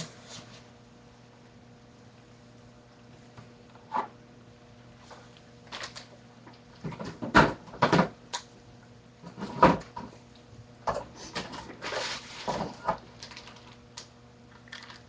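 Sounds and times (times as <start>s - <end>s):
objects knocking and clunking: 6.8s - 8.2s, 9.2s - 10.2s.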